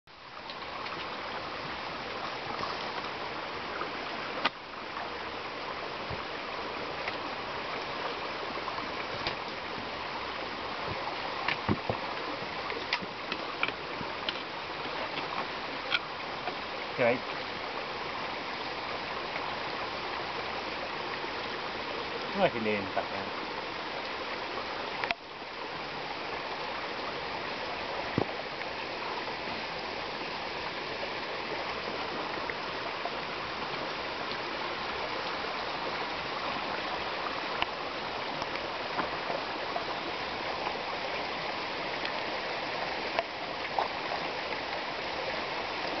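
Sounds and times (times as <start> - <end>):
stream water rushing: 0.1 - 46.0.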